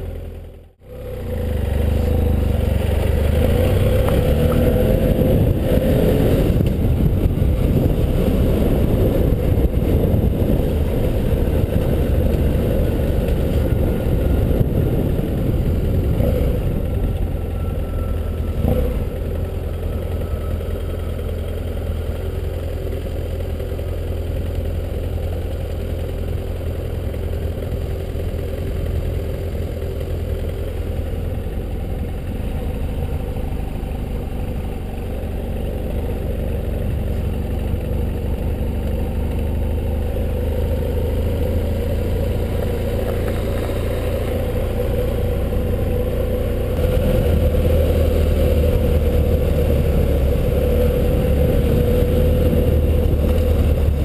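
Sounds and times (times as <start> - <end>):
motorcycle engine running: 0.0 - 54.0
riding wind rush: 4.6 - 17.2.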